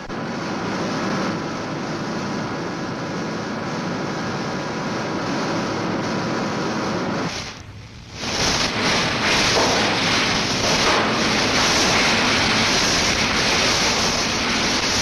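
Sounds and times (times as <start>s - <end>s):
rock pouring into hopper: 8.2s - 15.0s.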